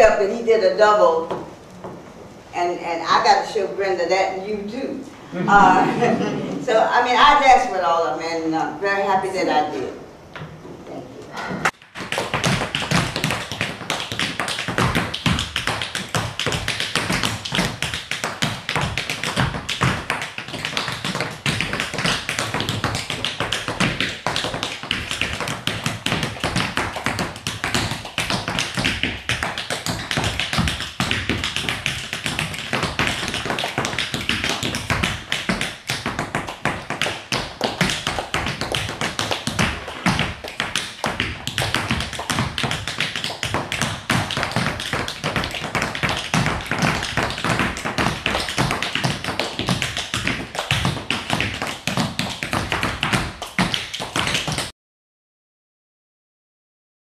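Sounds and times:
tap shoes on wooden floor: 11.7 - 54.7.

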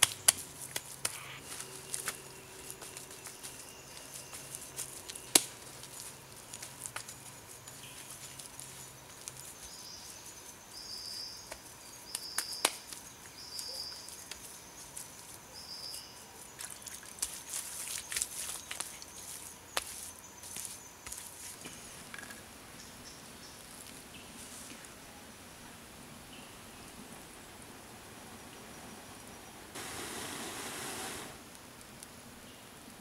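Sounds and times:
insects chirping: 0.0 - 24.0.

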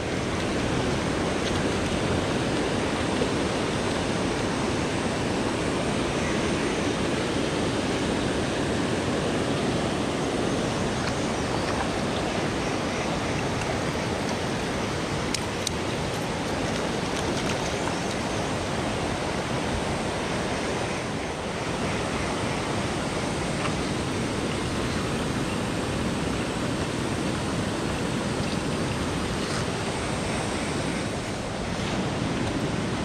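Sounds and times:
river rushing over boulders: 0.0 - 33.0.

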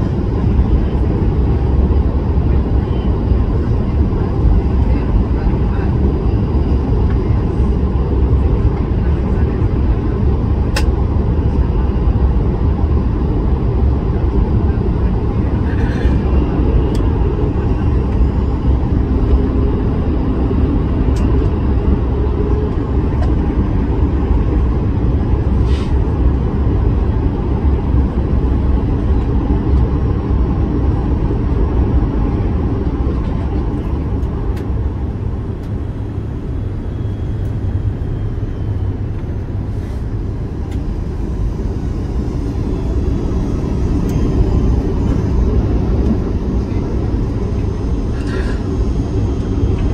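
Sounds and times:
aircraft cabin rumble: 0.0 - 49.9.

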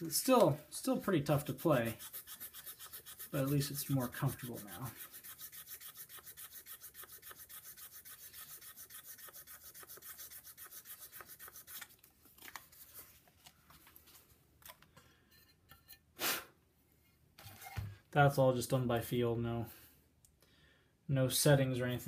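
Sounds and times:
sandpaper scraping a reed: 0.2 - 11.9.

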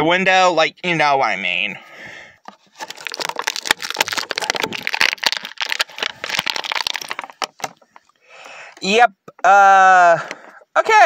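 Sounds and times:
plastic packaging crackling: 2.5 - 8.2.

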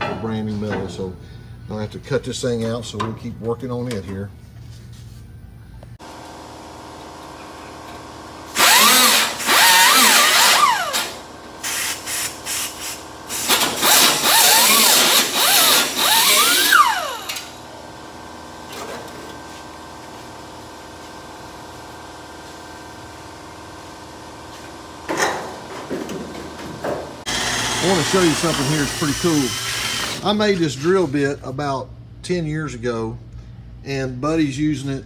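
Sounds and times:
pneumatic air tool cutting: 8.5 - 17.6, 27.2 - 30.4.

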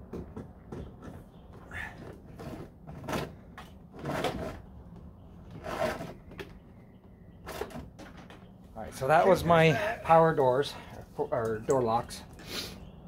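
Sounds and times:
wiring scraping and rustling: 2.0 - 6.7.

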